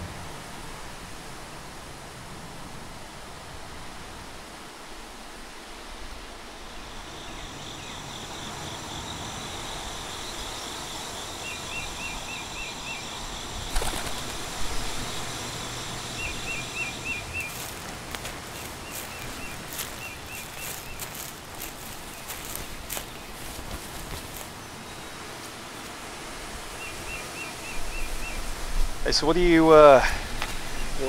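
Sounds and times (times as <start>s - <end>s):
background hiss: 0.0s - 31.0s
birds singing: 6.7s - 25.8s, 26.7s - 31.0s.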